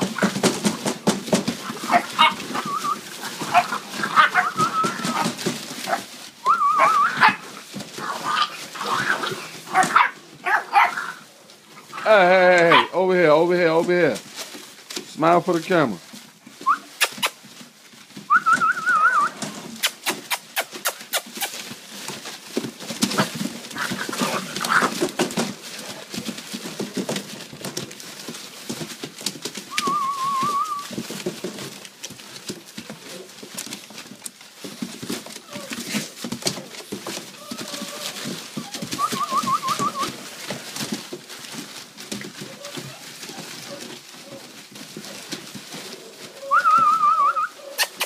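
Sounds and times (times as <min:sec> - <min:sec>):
paws scrambling on newspaper: 0:00.0 - 0:48.0
puppies whimpering: 0:01.7 - 0:09.0, 0:29.7 - 0:31.2, 0:37.0 - 0:40.8, 0:42.3 - 0:48.0
puppy squeals: 0:06.4 - 0:07.4.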